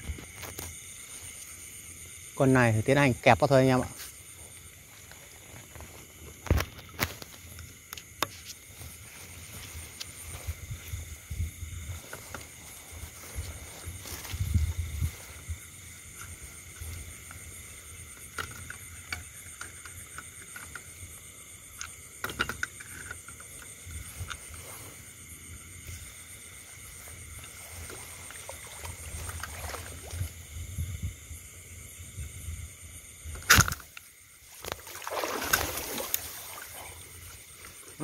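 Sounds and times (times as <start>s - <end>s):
leaves rustling: 8.6s - 15.8s.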